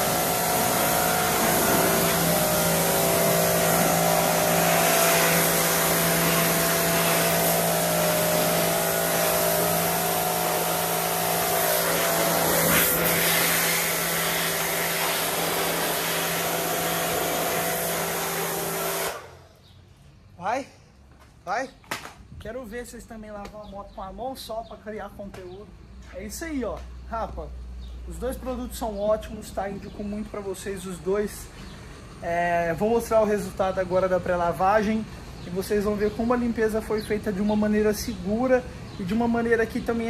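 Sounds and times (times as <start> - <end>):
hiss of high-pressure water jet: 0.0 - 19.4
pressure washer hum: 0.0 - 19.6.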